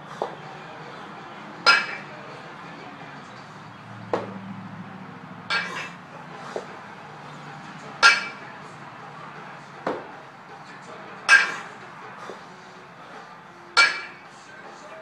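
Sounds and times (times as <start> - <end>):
kettlebell metallic clinks: 5.5 - 6.0, 8.0 - 8.4, 13.8 - 14.2
dull thump: 9.8 - 10.1.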